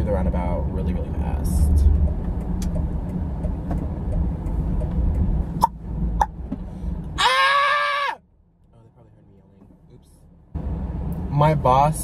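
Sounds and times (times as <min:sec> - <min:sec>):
car cabin road rumble: 0:00.0 - 0:12.0
high-pitched yell: 0:07.2 - 0:08.2.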